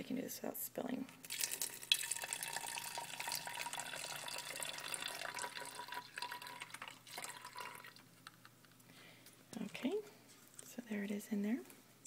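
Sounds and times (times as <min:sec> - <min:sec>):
liquid trickling into plastic bottle: 0:01.2 - 0:08.5.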